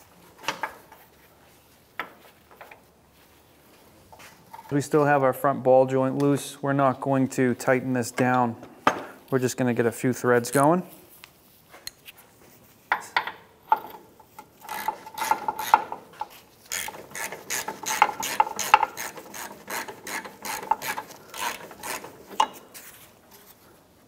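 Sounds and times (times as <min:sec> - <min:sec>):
hand ratchet clicking: 0:14.4 - 0:22.7.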